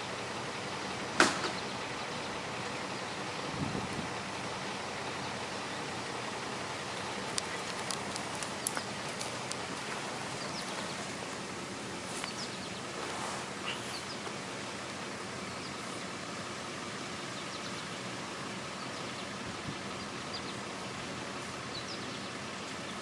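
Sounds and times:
outdoor background noise: 0:00.0 - 0:23.0
light clicks: 0:07.3 - 0:09.7
faint bird chirps: 0:12.2 - 0:13.0, 0:13.6 - 0:14.3.

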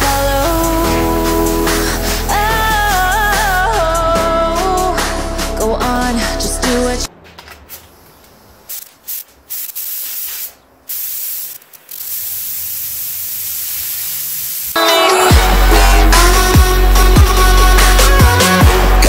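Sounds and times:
air spray gun hissing: 0:07.9 - 0:14.8
electronic music with heavy beat: 0:14.8 - 0:19.0.

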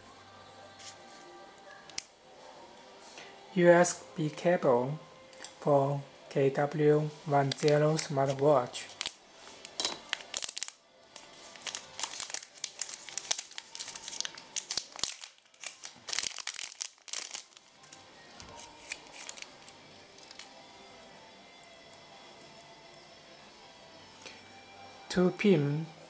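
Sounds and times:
plastic bag crinkling and tearing: 0:07.4 - 0:20.5.

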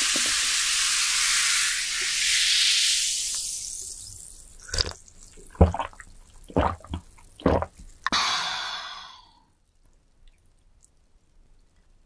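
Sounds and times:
hiss: 0:00.0 - 0:04.1
swallowing gulps: 0:04.6 - 0:08.3.

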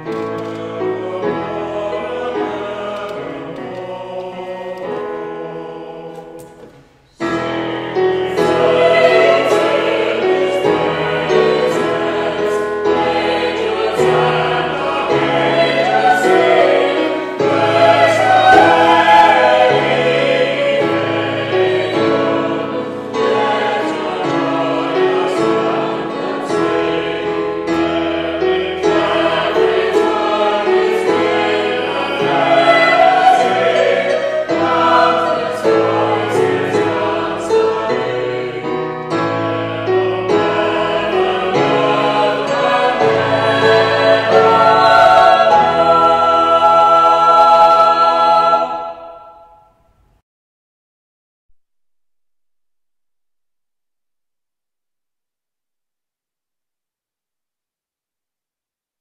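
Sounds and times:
choir singing a carol: 0:00.1 - 0:49.8
digital piano: 0:07.2 - 0:49.6.

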